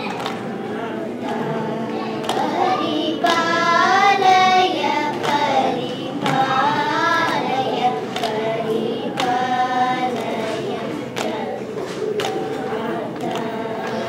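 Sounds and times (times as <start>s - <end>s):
hand claps: 0.0s - 0.6s, 2.2s - 14.0s
children singing in unison: 0.0s - 14.0s.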